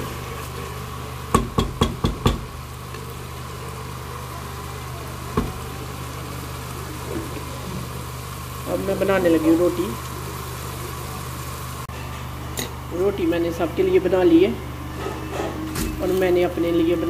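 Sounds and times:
spoon knocking on metal pot: 1.3s - 2.5s.

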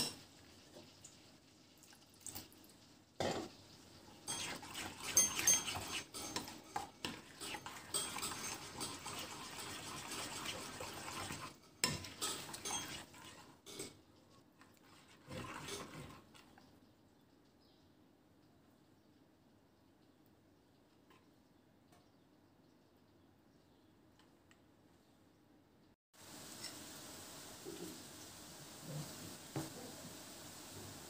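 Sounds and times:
spoon stirring in porcelain bowl: 4.3s - 14.0s, 14.6s - 16.6s.

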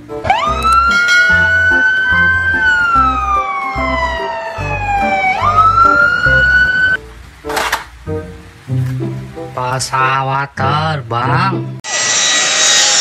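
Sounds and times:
fire engine siren wailing: 0.2s - 7.0s.

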